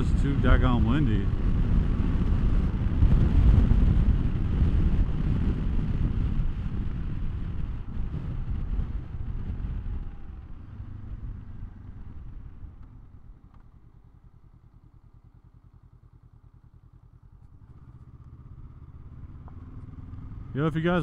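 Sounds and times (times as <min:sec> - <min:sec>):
wind noise: 0:00.0 - 0:13.6
motorcycle engine idling: 0:00.0 - 0:21.0.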